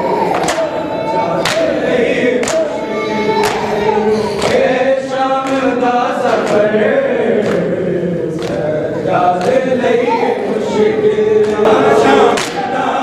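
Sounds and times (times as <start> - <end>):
men chanting in unison: 0.0 - 13.0
hands slapping bare chests: 1.4 - 1.7, 2.4 - 2.7.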